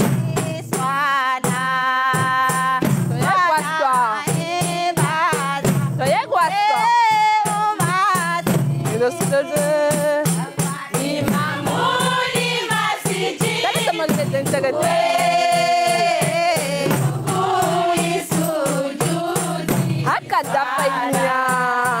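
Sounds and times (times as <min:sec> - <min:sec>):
frame drums beating: 0:00.0 - 0:22.0
women's choir singing: 0:08.6 - 0:22.0.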